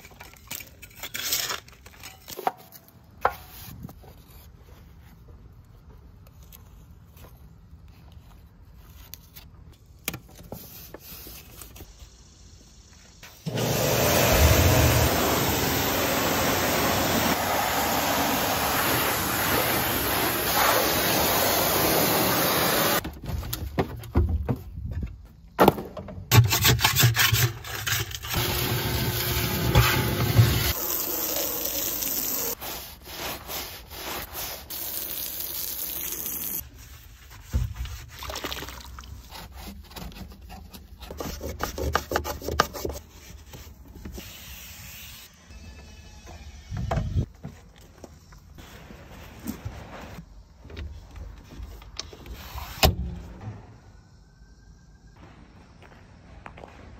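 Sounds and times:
hand scrubbing and scraping: 32.3s - 35.2s.

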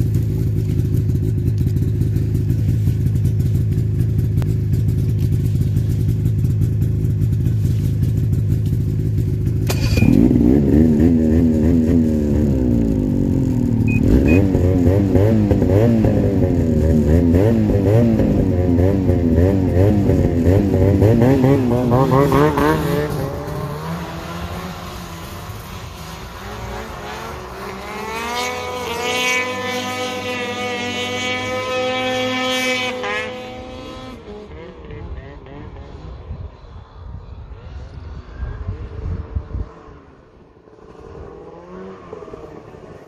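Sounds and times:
snowmobile engine idling: 0.0s - 10.2s, 12.0s - 18.4s
engine revving: 9.6s - 43.0s.

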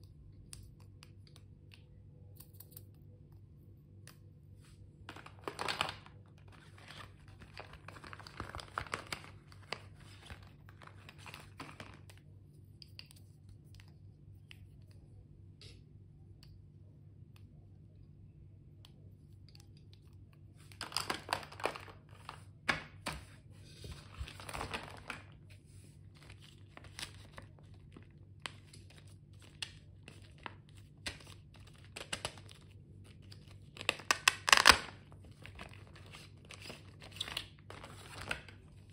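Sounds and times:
plastic packaging crinkling: 5.1s - 12.2s, 23.9s - 25.4s, 26.1s - 38.9s.

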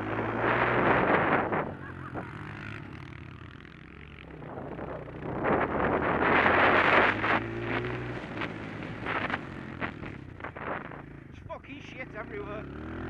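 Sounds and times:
wind rushing over microphone: 0.0s - 2.2s, 4.3s - 11.1s
dirt bike engine running: 0.0s - 13.0s.

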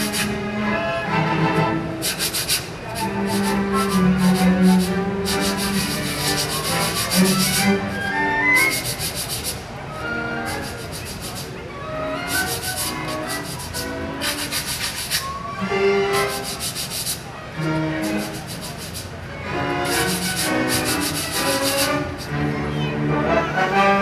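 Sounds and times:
sandpaper blocks scraping: 0.0s - 0.4s, 2.0s - 7.8s, 8.6s - 9.6s, 10.4s - 11.5s, 12.3s - 15.3s, 16.1s - 17.2s, 18.0s - 19.1s, 19.8s - 22.3s
string orchestra short notes: 2.9s - 9.0s.

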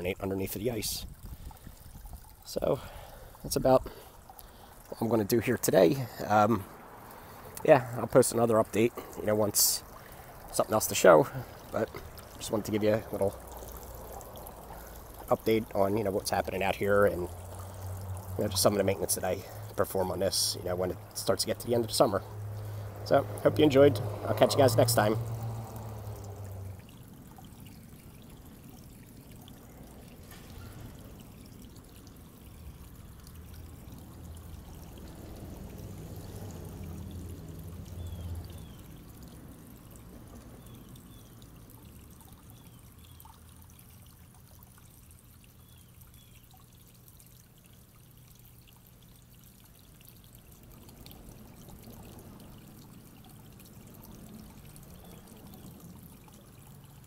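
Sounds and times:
waterfall trickling into pond: 0.0s - 57.0s.

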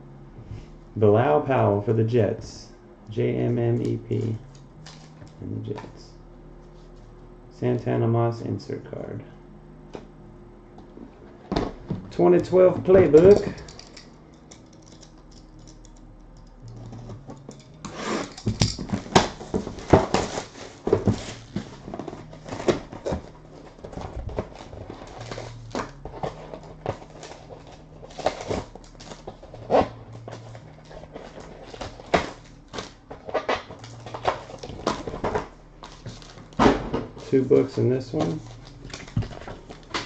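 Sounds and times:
plastic wrap and cardboard crinkling: 17.9s - 40.0s.

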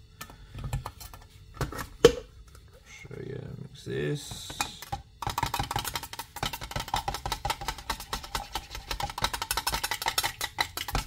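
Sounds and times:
stirrer scraping metal paint tin: 5.2s - 11.0s.

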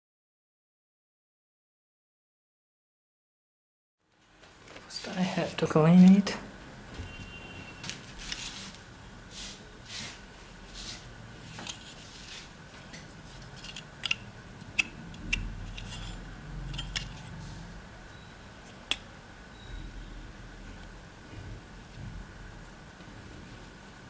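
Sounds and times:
metal heatsink clicking and clinking: 13.5s - 16.1s.

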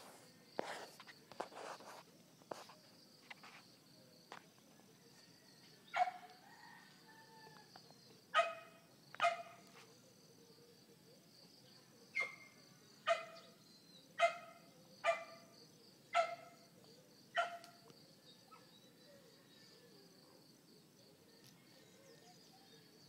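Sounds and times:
dog barking: 5.9s - 6.3s, 8.3s - 9.6s, 12.2s - 13.4s, 14.2s - 15.5s, 16.1s - 16.6s, 17.3s - 17.8s.

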